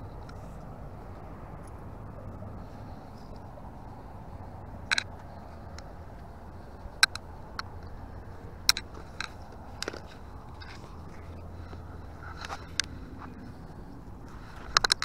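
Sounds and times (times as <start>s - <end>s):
steady low hum: 0.0s - 15.0s
sharp clicks and taps: 4.9s - 6.3s, 7.0s - 7.9s.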